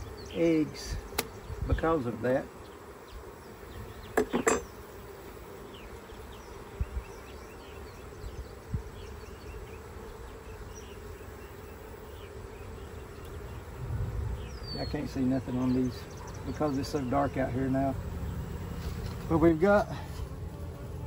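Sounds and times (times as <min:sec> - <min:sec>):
bees buzzing: 0:00.0 - 0:21.0
hive tool clicks: 0:01.1 - 0:01.4.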